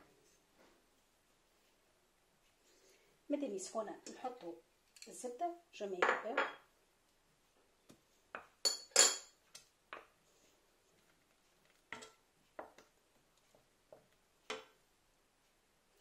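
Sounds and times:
spoons clinking on saucepan: 8.6s - 9.4s.

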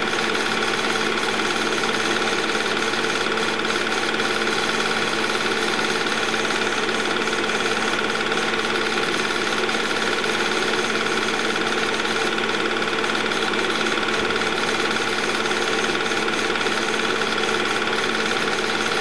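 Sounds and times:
film projector whirring: 0.0s - 19.0s.

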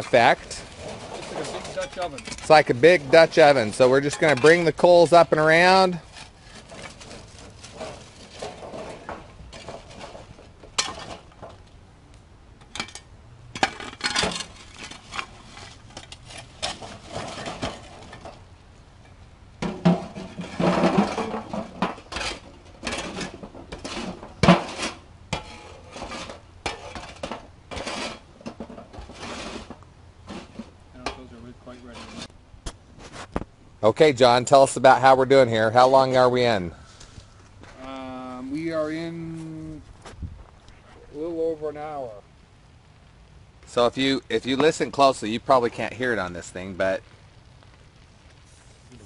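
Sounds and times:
charcoal clinking against metal: 0.0s - 11.2s, 19.0s - 32.3s
steel shovel scraping: 0.0s - 11.6s, 12.7s - 18.4s, 19.0s - 32.3s.

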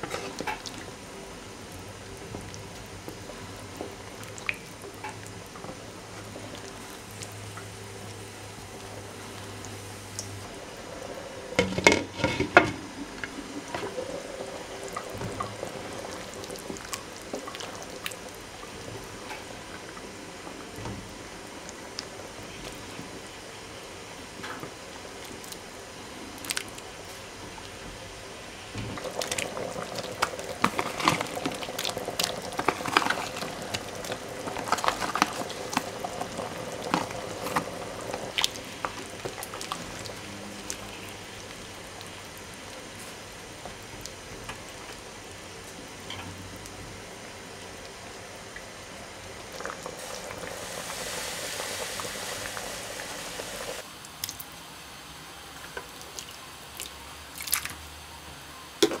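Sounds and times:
soup boiling and bubbling: 0.0s - 58.0s
spoon stirring with pops and clicks: 29.0s - 39.9s.

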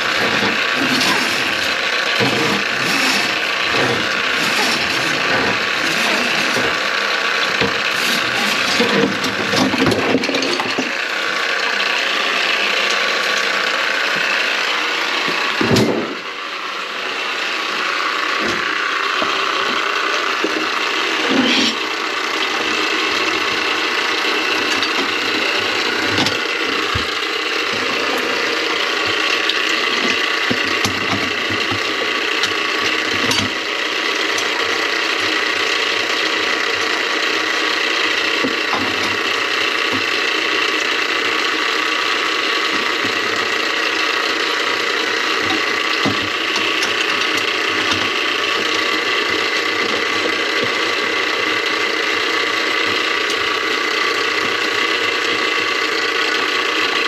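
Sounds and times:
drain snake cable clattering: 0.0s - 11.0s.

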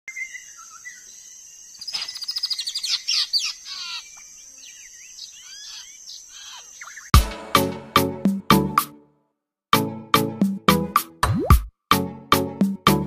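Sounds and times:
songbird singing: 0.1s - 7.2s.

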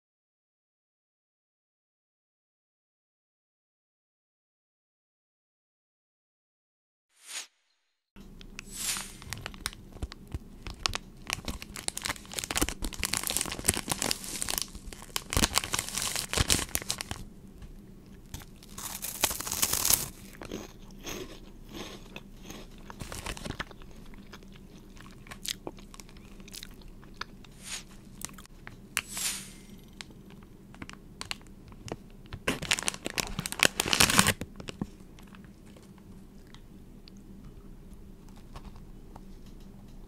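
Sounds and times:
crunching and chewing snacks: 8.6s - 17.3s, 18.0s - 28.5s, 29.7s - 37.2s.

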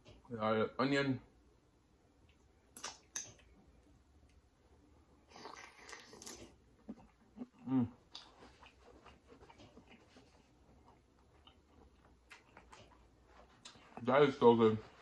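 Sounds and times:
person chewing wetly: 2.2s - 4.5s, 5.2s - 14.1s.

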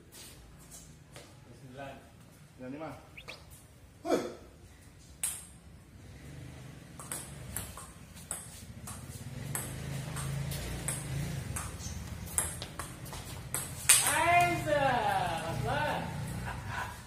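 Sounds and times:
ping pong ball clicking: 5.2s - 5.6s, 7.0s - 14.1s.

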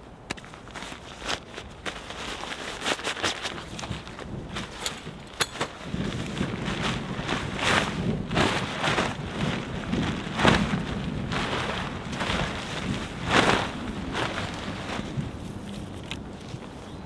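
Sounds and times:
footsteps on dry ground: 0.3s - 17.0s
tarp flapping and whooshing: 0.4s - 17.0s.

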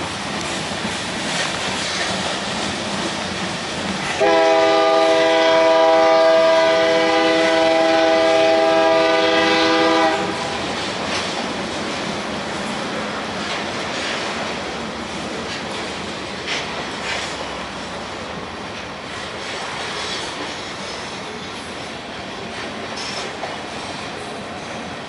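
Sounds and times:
freight train rolling on rails: 0.0s - 25.0s
locomotive air horn chord: 4.2s - 10.6s.

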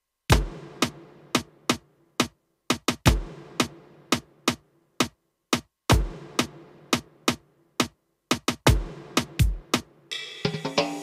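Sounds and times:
electronic drum strokes: 8.4s - 11.0s.

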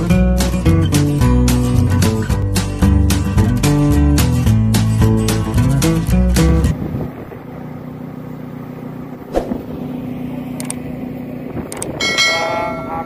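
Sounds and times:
engine humming: 0.0s - 13.0s
short clicks: 10.6s - 10.8s, 11.7s - 12.0s.

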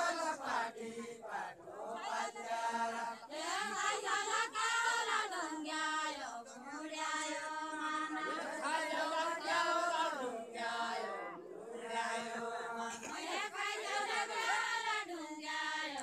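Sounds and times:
group singing unaccompanied: 0.0s - 16.0s.

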